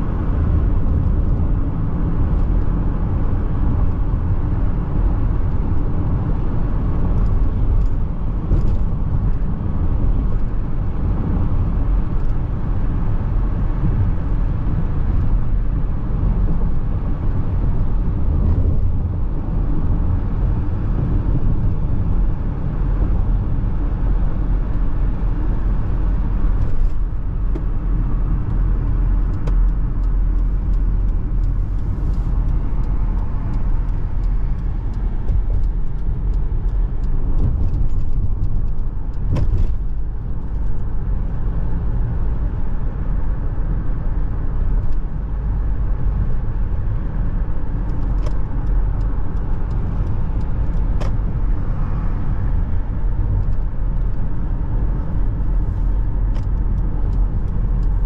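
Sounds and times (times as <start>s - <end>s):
car road and tyre noise: 0.0s - 58.0s.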